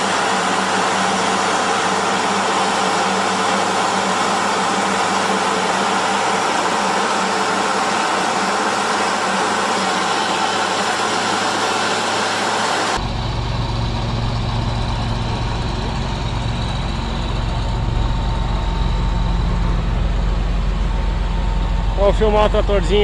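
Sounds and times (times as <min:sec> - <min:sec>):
tractor diesel engine running: 0:00.0 - 0:23.0
steady rushing noise: 0:13.0 - 0:23.0.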